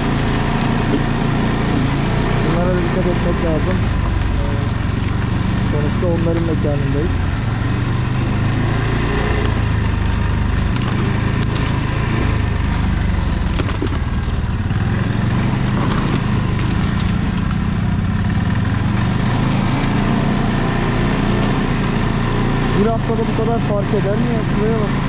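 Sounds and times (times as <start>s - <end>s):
atv engine running: 0.0s - 25.0s.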